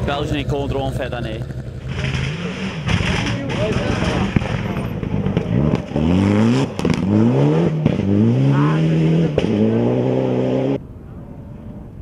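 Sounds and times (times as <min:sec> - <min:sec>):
sharp exhaust cracks: 0:00.0 - 0:08.2
rally car engine accelerating: 0:00.0 - 0:10.8.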